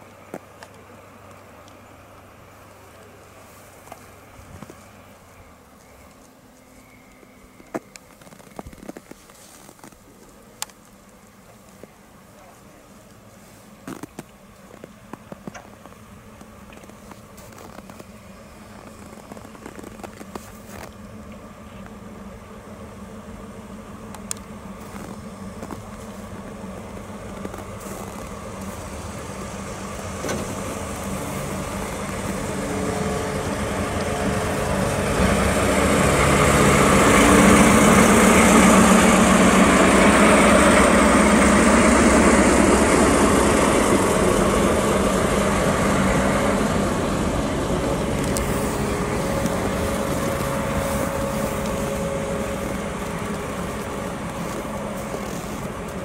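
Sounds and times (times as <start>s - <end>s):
diesel locomotive engine: 0.0s - 56.0s
hiss of snow thrown aside: 48.4s - 56.0s.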